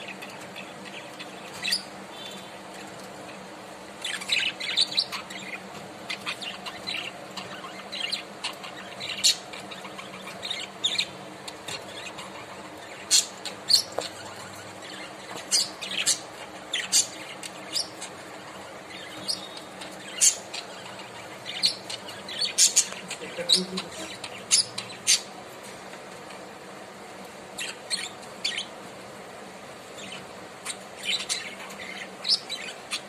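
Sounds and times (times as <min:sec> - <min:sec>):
budgerigars chirping: 0:00.0 - 0:02.9, 0:04.0 - 0:25.4, 0:27.6 - 0:28.8, 0:30.0 - 0:33.0.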